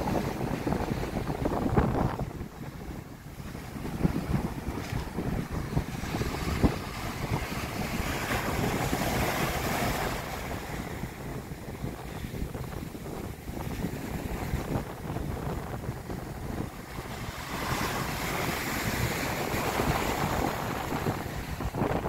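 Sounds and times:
ocean surf breaking on beach: 0.0s - 22.0s
wind buffeting microphone: 0.0s - 22.0s.

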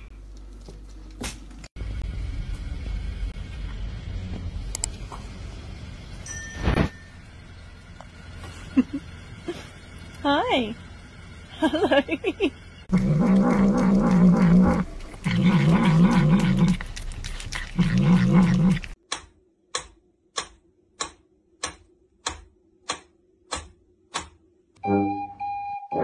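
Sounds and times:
evenly spaced sharp clicks: 18.8s - 24.4s.

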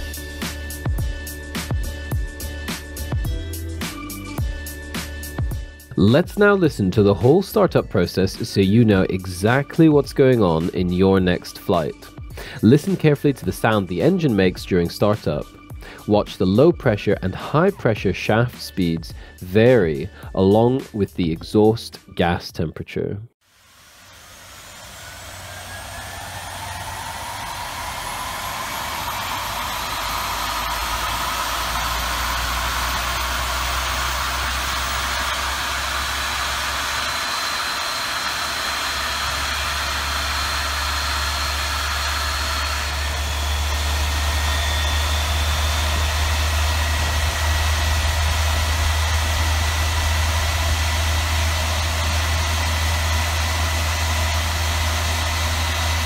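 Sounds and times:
jet engine spinning up: 23.5s - 56.0s.

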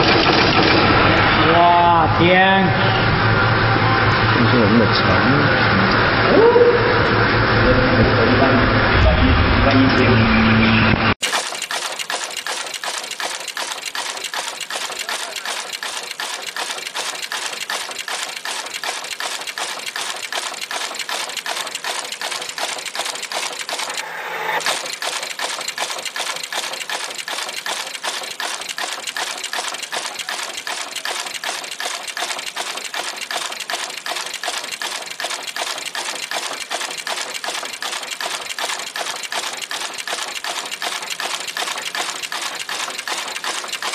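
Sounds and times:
machine clatter of mechanical clicks: 0.0s - 1.3s, 11.2s - 43.9s.

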